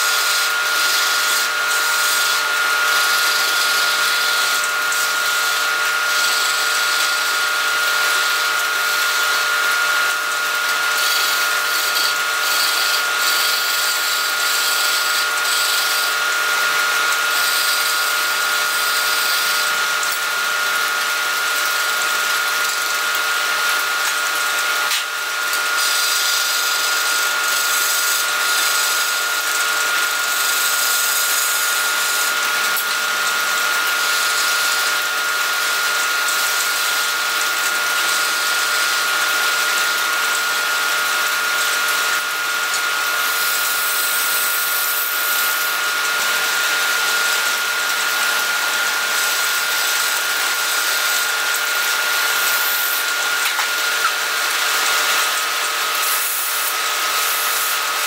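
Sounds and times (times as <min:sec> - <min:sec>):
chisel cutting spinning wood: 0:00.0 - 0:58.0
wood lathe motor whine: 0:00.0 - 0:58.0
sandpaper on turning wood: 0:11.0 - 0:16.1, 0:25.8 - 0:29.2, 0:49.2 - 0:53.8, 0:54.4 - 0:58.0.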